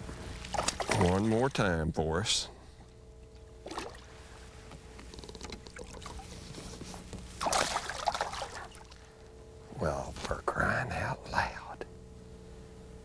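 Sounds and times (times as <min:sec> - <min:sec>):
fish splashing in water: 0:00.5 - 0:01.2, 0:07.4 - 0:09.0.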